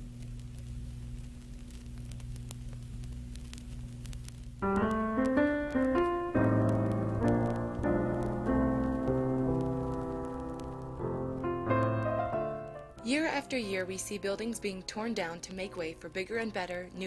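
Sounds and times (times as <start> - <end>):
low hum with crackling: 0.0 - 17.0
solo piano music: 4.6 - 15.2.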